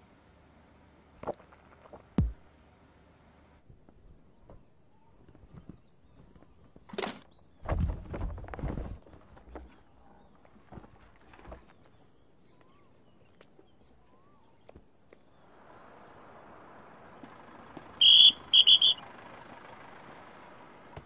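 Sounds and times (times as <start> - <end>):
heavy thud: 2.2 - 2.4
birds chirping: 4.3 - 7.8, 9.5 - 21.0.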